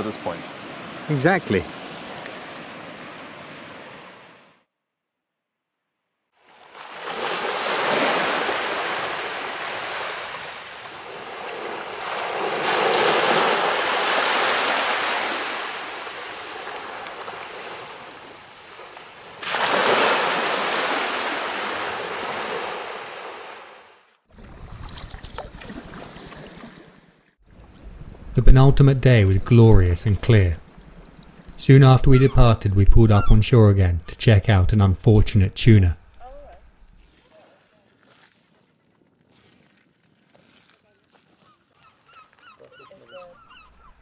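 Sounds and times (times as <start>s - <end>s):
sea waves washing on shore: 0.0s - 4.6s, 6.4s - 28.4s
wind: 0.0s - 44.0s.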